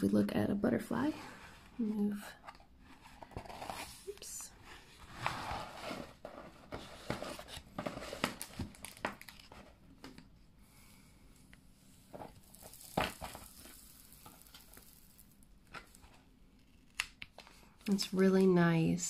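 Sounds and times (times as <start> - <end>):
plastic film crinkling: 7.4 - 9.6, 12.1 - 18.2.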